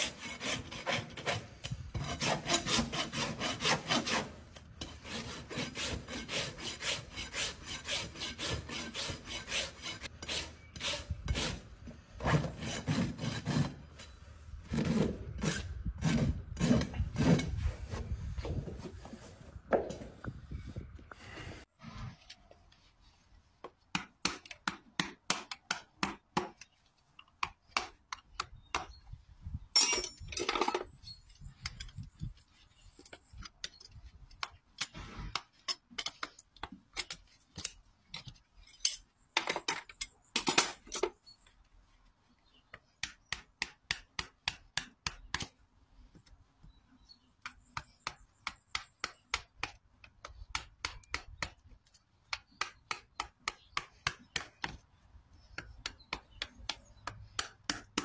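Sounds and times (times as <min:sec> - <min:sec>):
horseshoe pried with pullers grating: 0:00.0 - 0:18.1, 0:29.7 - 0:41.6, 0:47.2 - 0:54.8.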